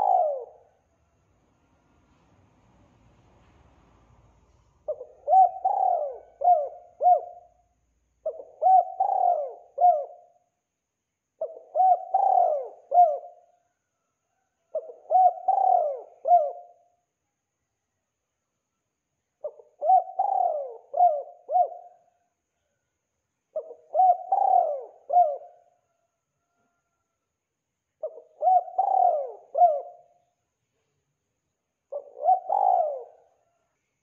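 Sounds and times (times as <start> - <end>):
dove cooing: 0.0 - 0.8, 4.8 - 7.6, 8.2 - 10.5, 11.4 - 13.6, 14.7 - 16.9, 19.4 - 22.2, 23.5 - 26.0, 28.0 - 30.3, 31.9 - 33.6.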